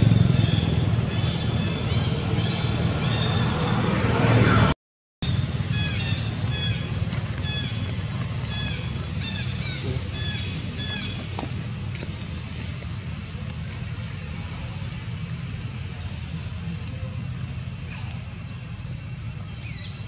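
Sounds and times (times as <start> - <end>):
steady low drone: 0.0 - 20.0
bird chirping: 19.4 - 20.0.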